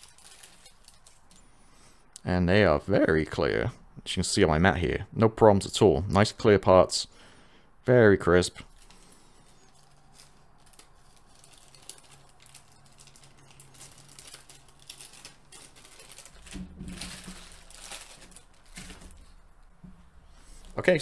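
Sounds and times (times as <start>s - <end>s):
plastic bag crinkling: 0.0s - 1.5s, 8.6s - 19.6s.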